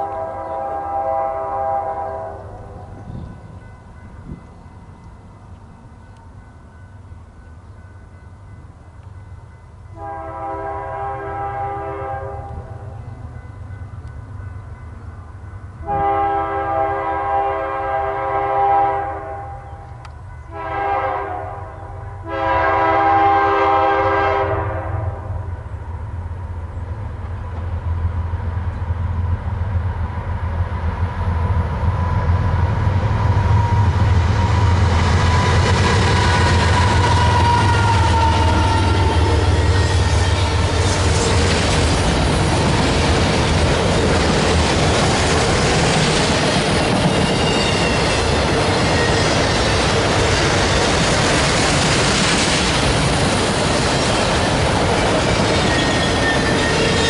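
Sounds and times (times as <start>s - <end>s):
locomotive air horn blasts: 0.0s - 2.6s, 9.9s - 12.9s, 15.8s - 19.8s, 20.5s - 25.5s, 36.2s - 40.8s
train wheels on rails: 25.3s - 57.0s
locomotive engine rumble: 25.4s - 56.7s.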